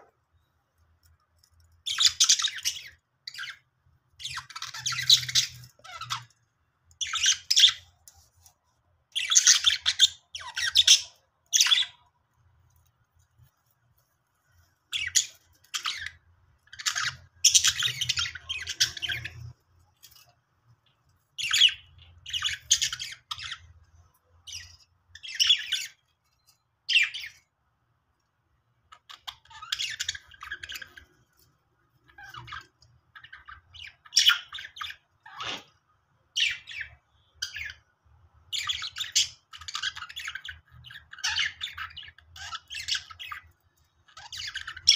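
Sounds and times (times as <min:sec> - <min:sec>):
budgerigars chattering: 0:16.7 - 0:19.5.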